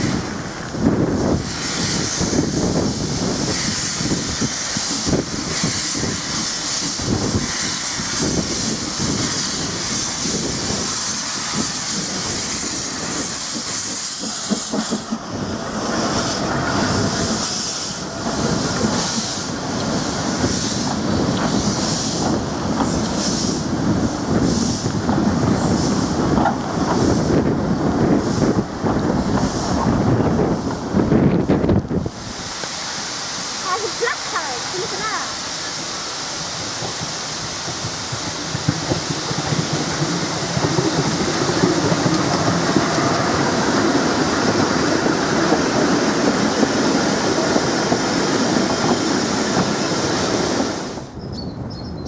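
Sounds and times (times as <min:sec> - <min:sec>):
steam hissing: 0:00.0 - 0:51.2
steam locomotive exhaust beats: 0:00.0 - 0:52.0
carriages rumbling: 0:11.9 - 0:51.2.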